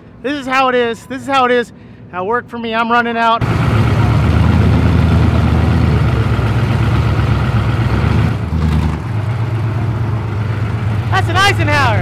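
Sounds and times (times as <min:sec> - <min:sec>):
truck engine idling loudly: 0:03.4 - 0:12.0.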